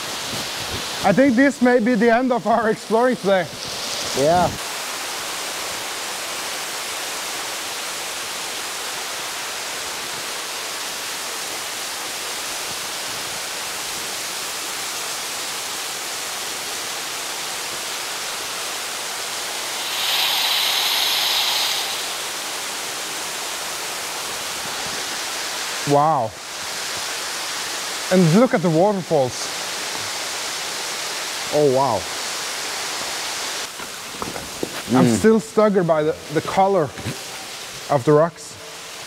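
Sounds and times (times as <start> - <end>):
rush of falling water: 0.0 - 39.0.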